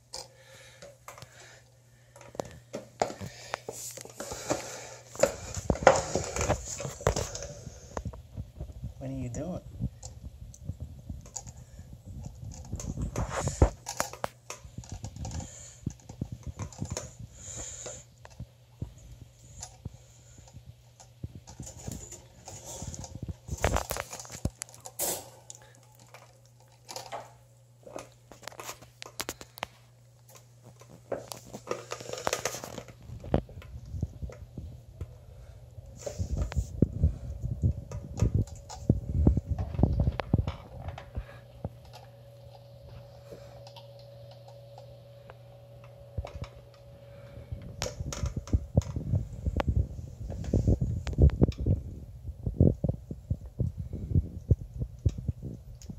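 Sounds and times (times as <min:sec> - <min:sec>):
puppy claws clicking on tiles: 0:11.2 - 0:18.4.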